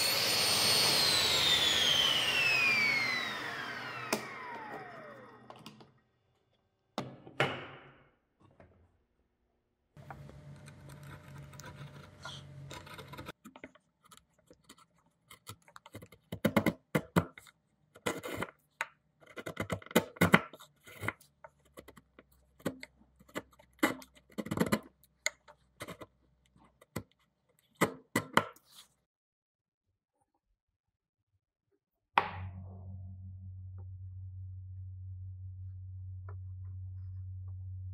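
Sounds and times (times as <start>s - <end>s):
chisel scraping wood: 10.1s - 16.2s.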